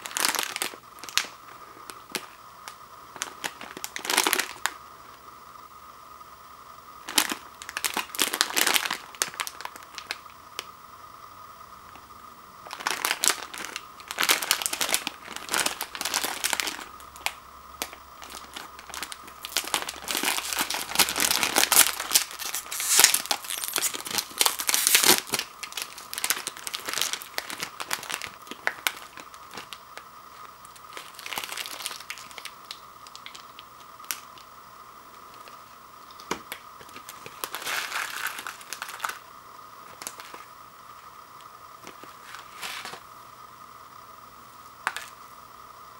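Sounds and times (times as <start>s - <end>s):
plastic packet tearing: 0.0s - 1.3s, 3.2s - 4.7s, 7.0s - 10.2s, 12.7s - 34.5s, 35.3s - 39.2s, 39.9s - 40.5s
plastic packet crinkling: 0.0s - 2.4s, 3.1s - 4.8s, 7.0s - 10.7s, 12.6s - 34.5s, 35.2s - 39.2s, 39.8s - 40.5s, 41.8s - 43.0s.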